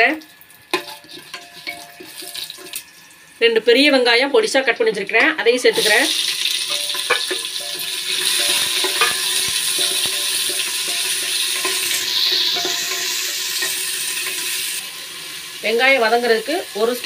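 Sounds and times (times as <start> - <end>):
onions sizzling in hot fat: 0.0 - 17.0
wooden spatula scraping pot: 6.7 - 14.7.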